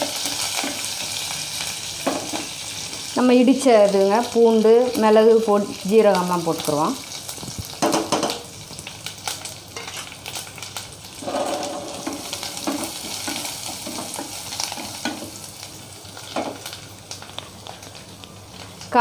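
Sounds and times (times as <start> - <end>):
spices sizzling and crackling in oil: 0.0 - 19.0.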